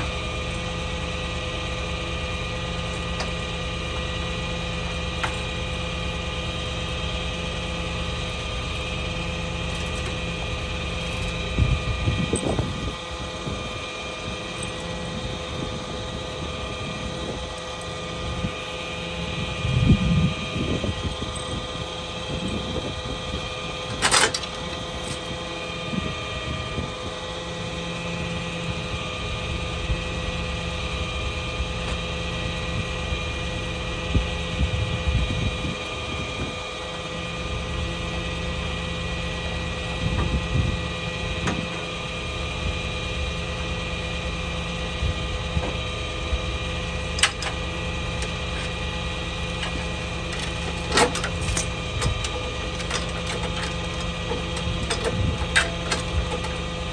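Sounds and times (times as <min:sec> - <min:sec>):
truck engine idling: 0:00.0 - 0:56.9
tow chains clanking: 0:24.0 - 0:25.4, 0:48.2 - 0:54.1.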